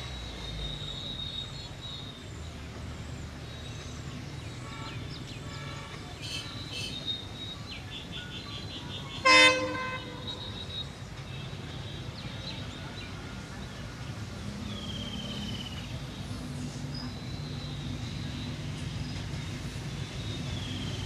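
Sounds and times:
diesel locomotive engine rumble: 0.0s - 21.0s
locomotive horn toot: 9.2s - 10.5s.

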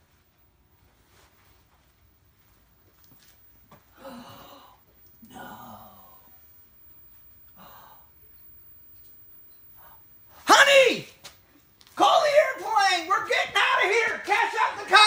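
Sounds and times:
man sighing: 3.9s - 6.3s
man breathing: 7.5s - 8.2s.

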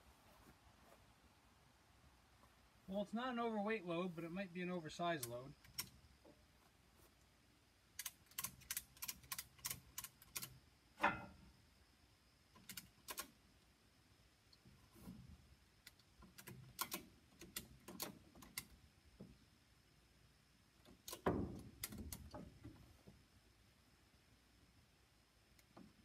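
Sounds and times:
ratchet strap clicking: 8.0s - 10.5s, 12.6s - 13.3s, 15.9s - 18.7s.

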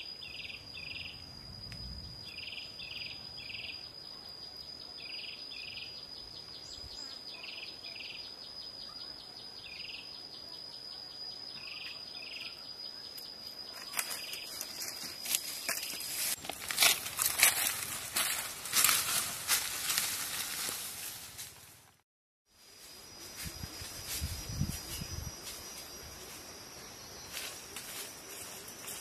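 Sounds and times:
short insect chirps: 0.0s - 21.7s
insect trill: 0.0s - 21.9s, 22.5s - 29.0s
rustling: 13.8s - 22.0s.

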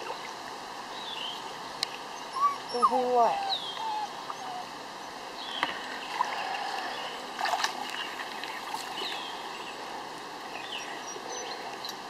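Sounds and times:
water sloshing and splashing: 5.7s - 9.6s.

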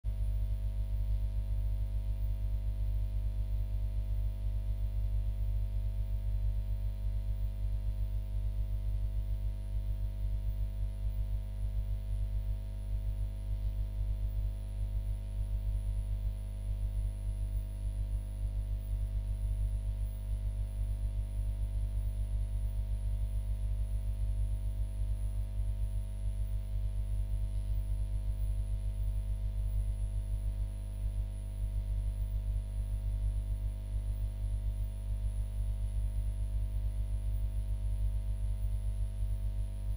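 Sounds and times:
low electrical hum: 0.1s - 39.9s.

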